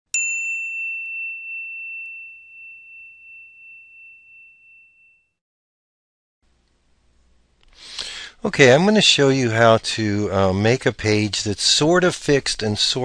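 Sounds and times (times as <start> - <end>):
high bell-like chime: 0.1 - 5.4.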